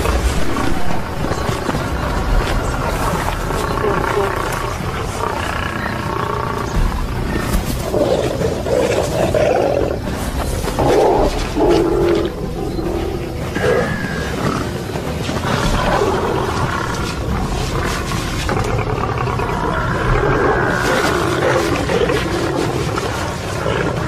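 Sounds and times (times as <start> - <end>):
background music: 0.0 - 24.0
lions growling and snarling: 0.0 - 24.0.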